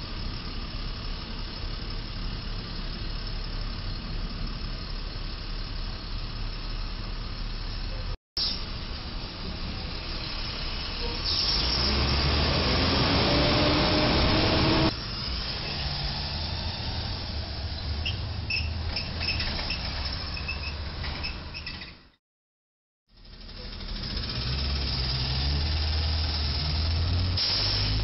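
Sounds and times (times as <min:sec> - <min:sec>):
street traffic: 0:00.0 - 0:22.2, 0:23.1 - 0:28.0
truck engine accelerating: 0:09.4 - 0:21.1, 0:23.2 - 0:28.0.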